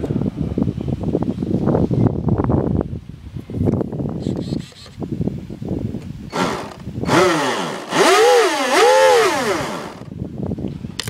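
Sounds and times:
electric motors revving whine: 6.3s - 10.1s.

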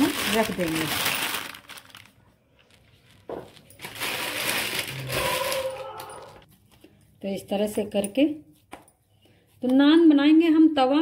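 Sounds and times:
plastic bag crinkling: 0.0s - 6.5s.

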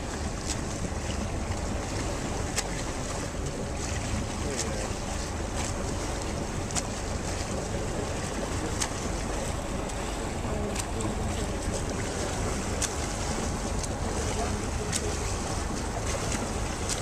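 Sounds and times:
boat engine rumbling: 0.0s - 17.0s
sea noise: 0.0s - 17.0s
wind: 0.0s - 17.0s.

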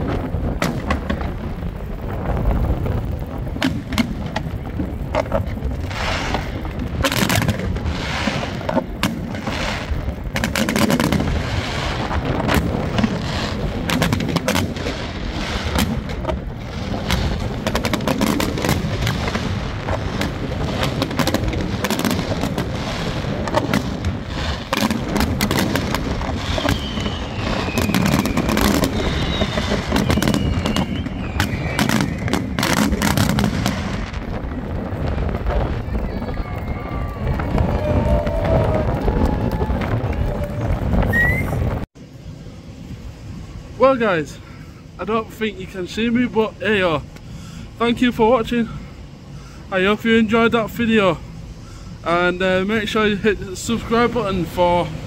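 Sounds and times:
crackling firework bursts: 0.0s - 55.0s
high whistling tone sliding down: 26.5s - 32.4s, 41.0s - 41.6s.

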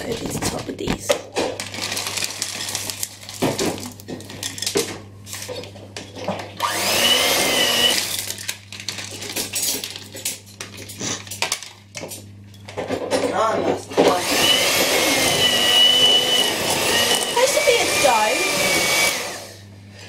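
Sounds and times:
plastic packet rustling: 0.0s - 5.5s, 7.8s - 11.9s
electric hand mixer whining: 6.6s - 8.3s, 14.0s - 19.7s.

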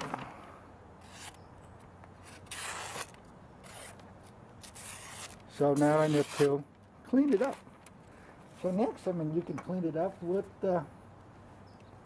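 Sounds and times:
knife slicing paper: 1.0s - 1.4s, 2.2s - 6.6s
paper rustling: 2.2s - 8.9s.

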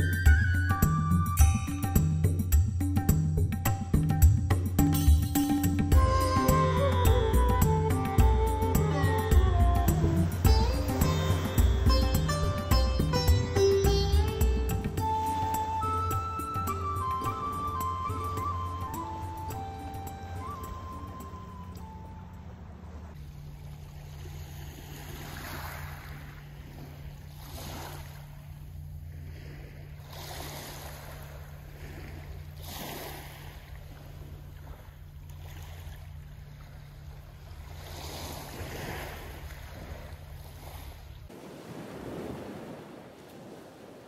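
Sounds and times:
small waves on a pebble beach: 23.0s - 44.0s.

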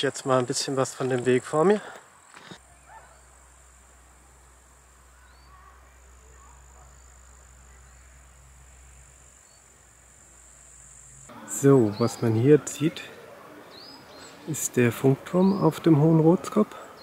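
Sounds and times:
insects chirring: 0.0s - 13.0s
low steady hum: 2.6s - 11.4s
faint bird chirps: 5.0s - 9.8s.

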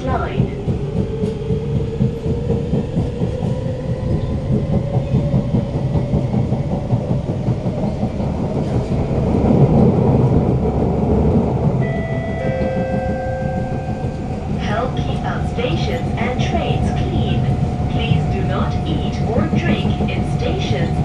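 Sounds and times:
train wheels rumbling on rails: 0.0s - 21.0s.

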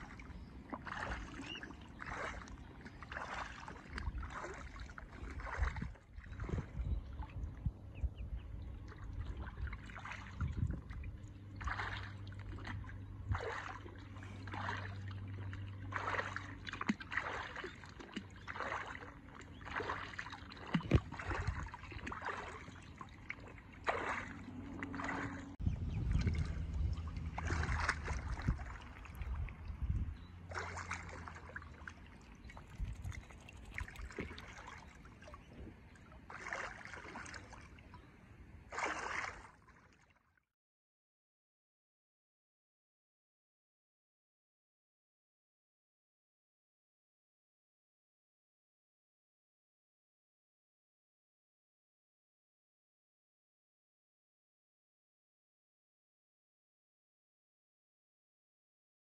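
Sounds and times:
low steady hum: 0.0s - 39.4s
water splashing against boat: 0.0s - 40.3s.

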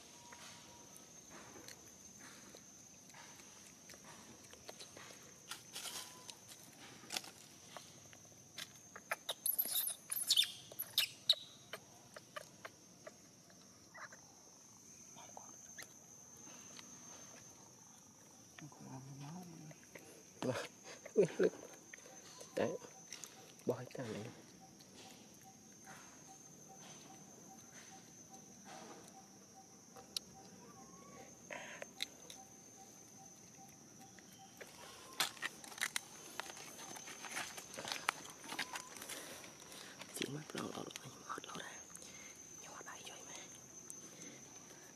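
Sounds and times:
insects droning: 0.0s - 44.9s
baby monkey squeaking and crying: 9.0s - 11.5s.

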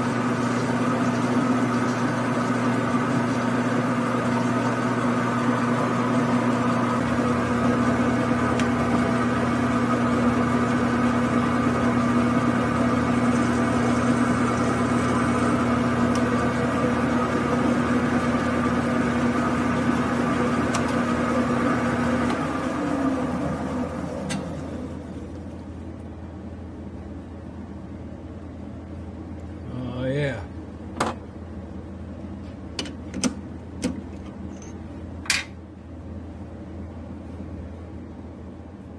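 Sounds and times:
metal lathe running: 0.0s - 23.7s.

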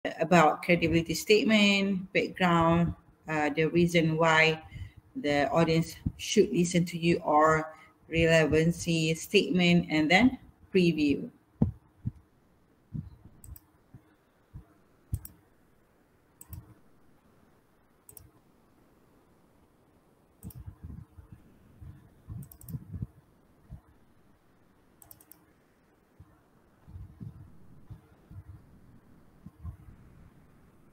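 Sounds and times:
mouse and keyboard clicks: 15.1s - 15.4s, 16.4s - 16.8s, 20.4s - 20.7s, 22.4s - 22.9s, 25.0s - 25.4s.

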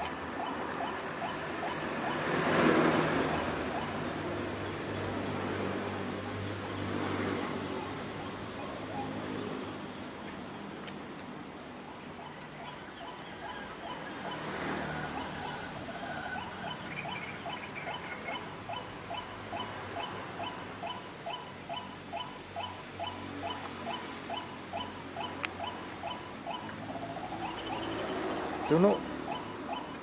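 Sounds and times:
waterhen calling: 3.2s - 4.0s, 11.9s - 30.0s.

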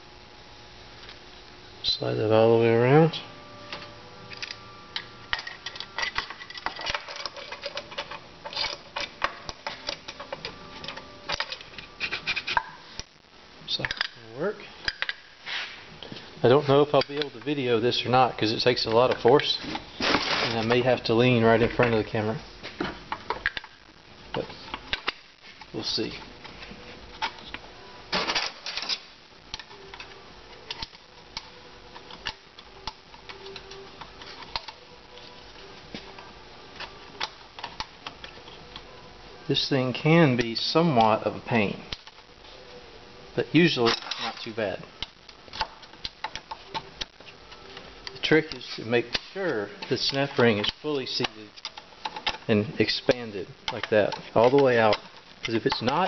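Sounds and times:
metal parts clicking and tapping: 4.3s - 12.7s, 28.2s - 35.3s, 36.0s - 38.9s, 43.8s - 56.0s.

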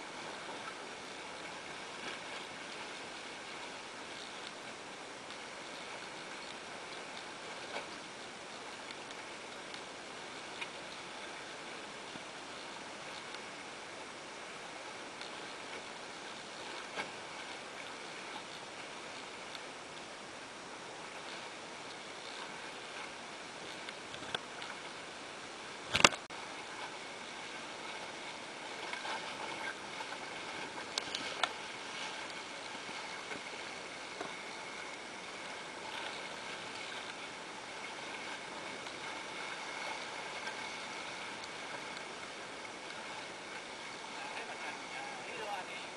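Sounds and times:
water rushing along boat hull: 0.0s - 45.9s
light ticks: 4.2s - 4.6s, 8.8s - 9.9s, 12.1s - 13.5s, 19.4s - 19.7s, 30.9s - 31.6s.

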